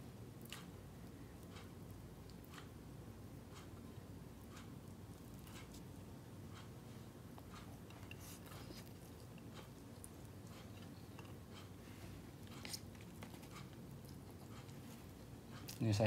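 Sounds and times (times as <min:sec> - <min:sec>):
person chewing: 0:12.4 - 0:15.8.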